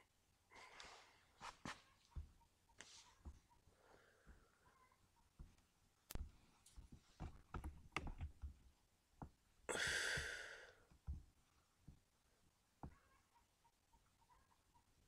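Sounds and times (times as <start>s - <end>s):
breathy exhale: 9.7s - 10.8s.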